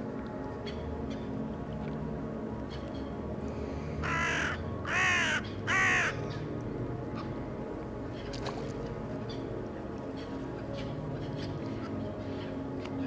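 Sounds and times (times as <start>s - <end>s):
bird cawing harshly: 4.0s - 6.1s.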